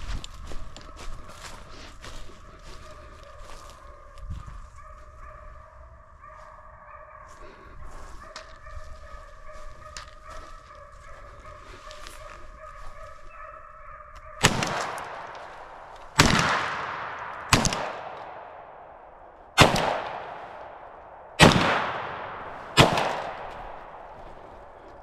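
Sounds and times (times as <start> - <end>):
gunshots echoing: 14.4 - 24.9.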